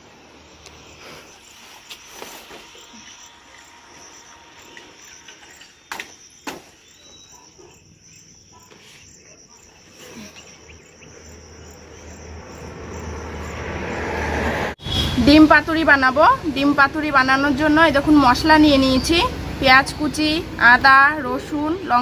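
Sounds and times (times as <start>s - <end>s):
high-pitched insect drone: 0.4s - 9.2s.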